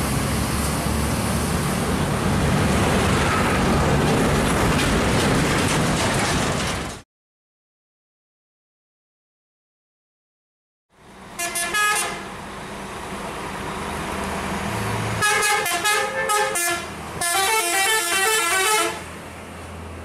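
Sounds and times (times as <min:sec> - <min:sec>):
musical bus air horn: 0:11.4 - 0:12.3, 0:15.2 - 0:19.1.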